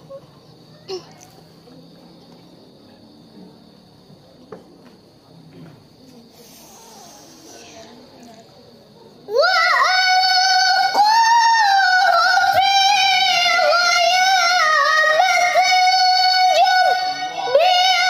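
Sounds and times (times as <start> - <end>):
woman chanting recitation: 6.2 - 8.3, 9.2 - 18.0.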